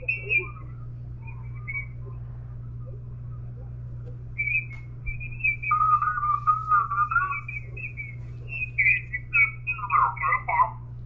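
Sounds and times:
warbling radio whistles and chirps: 0.0s - 10.8s
steady low hum: 0.0s - 11.0s.

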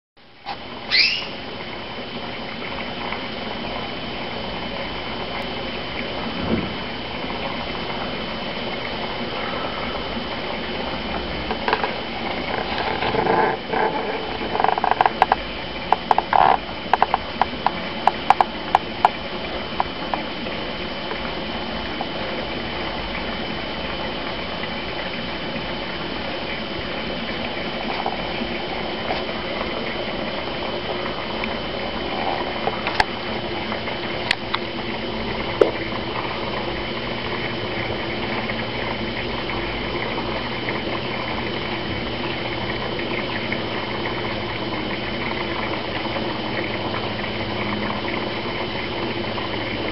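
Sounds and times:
water bubbling in filter: 0.2s - 49.9s
sharp clicks and pops: 11.5s - 19.2s.

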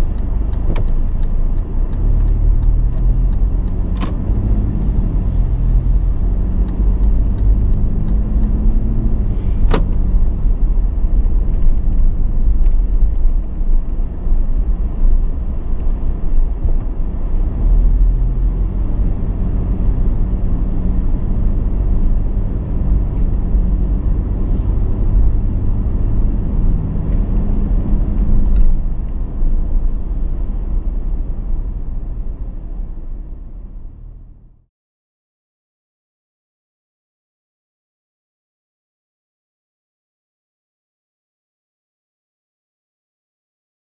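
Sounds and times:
car engine and road rumble: 0.0s - 34.7s.

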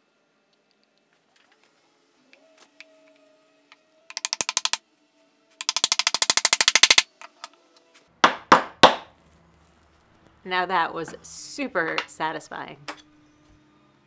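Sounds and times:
wooden mallet tapping wood: 4.1s - 4.8s.

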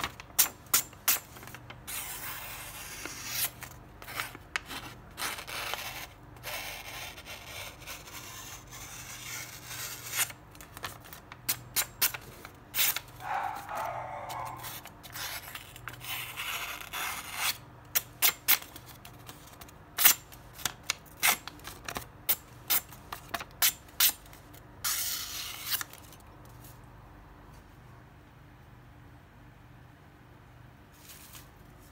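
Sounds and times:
paper rustling: 30.9s - 31.9s.

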